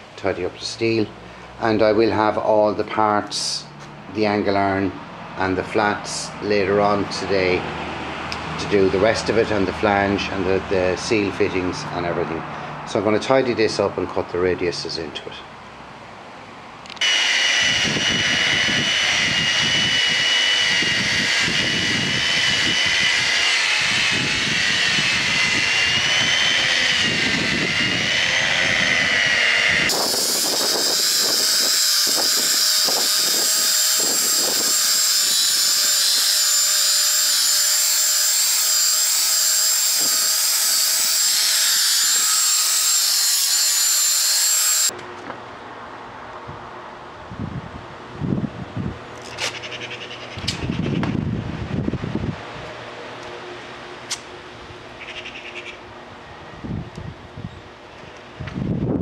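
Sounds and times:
angle grinder whine: 16.9 - 45.0
grinding disc scraping metal: 17.0 - 44.9.

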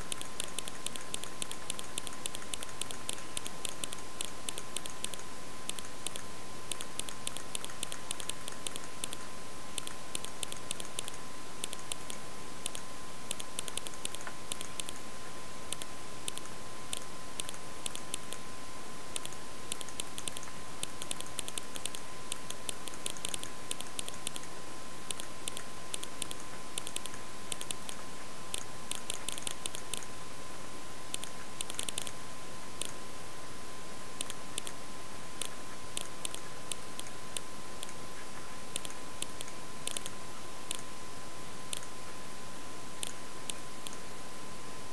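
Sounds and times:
keyboard and mouse clicking: 0.0 - 15.0, 15.7 - 18.4, 19.2 - 24.5, 25.1 - 30.1, 31.1 - 32.2, 34.2 - 34.8, 35.4 - 38.0, 38.8 - 40.8, 41.7 - 41.9
constant thin whine: 0.0 - 44.9
steady hiss: 0.0 - 44.9.

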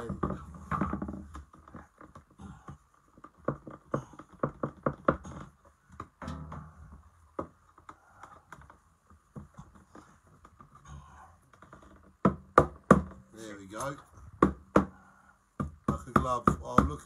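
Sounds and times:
floorboard knocking and tapping: 0.0 - 7.6, 12.0 - 13.2, 14.4 - 15.0, 15.6 - 17.0.

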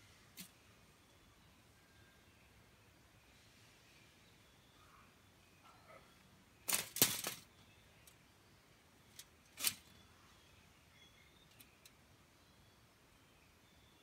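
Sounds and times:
wire cage trap rattling on paving: 6.7 - 7.5, 9.5 - 9.9.

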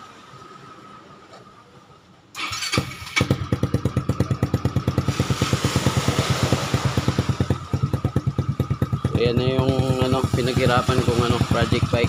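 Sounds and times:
scooter engine cranking: 2.4 - 12.0
scooter engine idling: 2.4 - 12.0.

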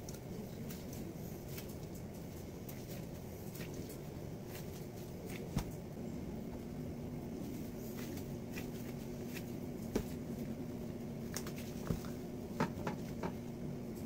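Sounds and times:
steady low hum: 0.0 - 14.0
light taps and rustles: 7.5 - 10.5.

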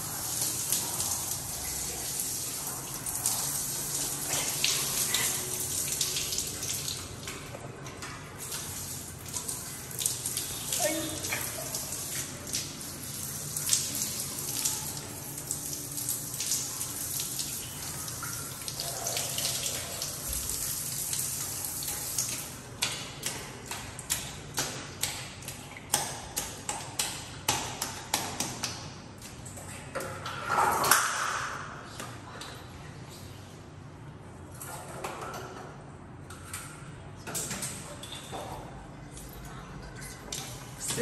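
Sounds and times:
water splashing on tiled floor: 0.0 - 33.6, 36.3 - 41.0.

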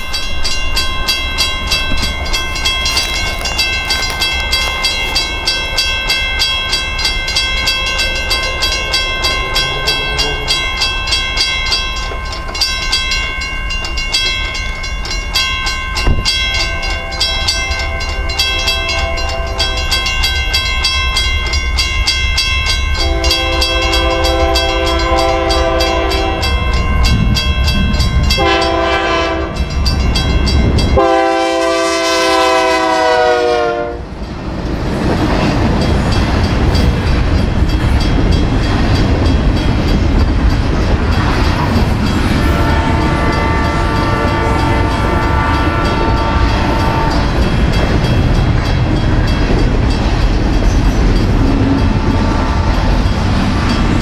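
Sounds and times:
railroad crossing bell ringing: 0.0 - 54.0
train rumbling and clattering: 0.0 - 54.0
locomotive air horn blasts: 23.0 - 26.6, 28.4 - 29.6, 31.0 - 34.1, 42.4 - 47.2, 52.2 - 52.9.

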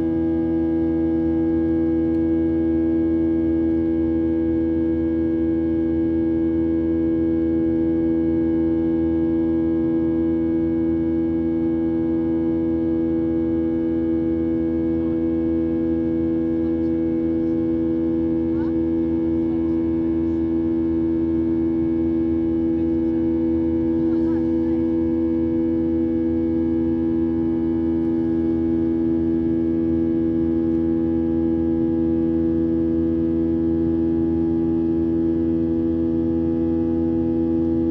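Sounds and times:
jet engines droning in cabin: 14.4 - 33.4.

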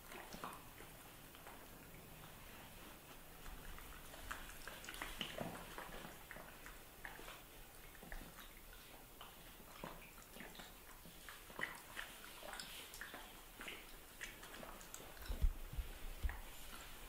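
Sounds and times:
puppy sucking and lapping: 0.0 - 17.0.

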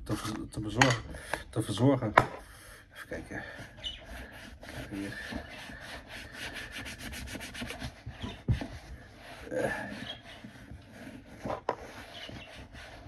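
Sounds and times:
rubbing leather boot: 3.3 - 13.0.

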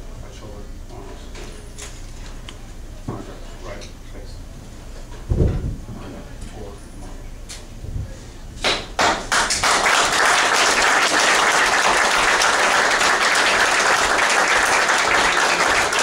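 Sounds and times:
small crowd applauding: 8.7 - 16.0.

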